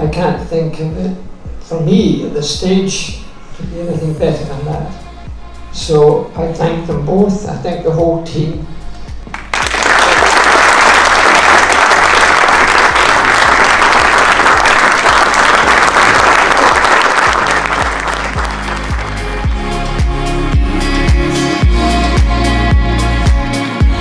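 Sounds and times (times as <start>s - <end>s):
background music: 0.0s - 24.0s
large audience applauding: 9.3s - 19.5s.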